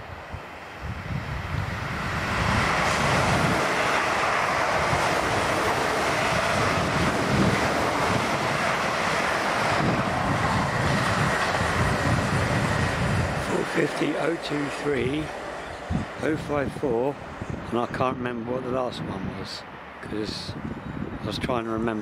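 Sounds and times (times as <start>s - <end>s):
train passing: 0.0s - 22.0s.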